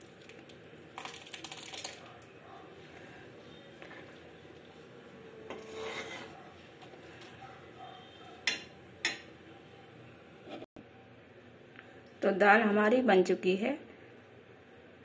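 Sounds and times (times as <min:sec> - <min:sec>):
ladle scraping metal pan: 0:05.5 - 0:06.4.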